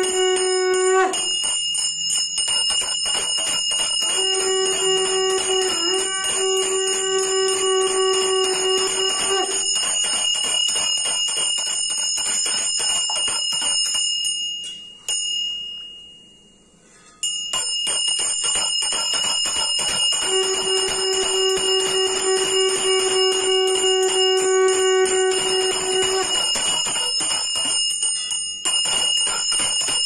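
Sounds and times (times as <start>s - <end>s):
conch shell blown: 0.0s - 1.5s, 3.7s - 11.1s, 19.2s - 27.7s
brass hand bell ringing fast: 0.0s - 16.2s, 17.2s - 30.0s.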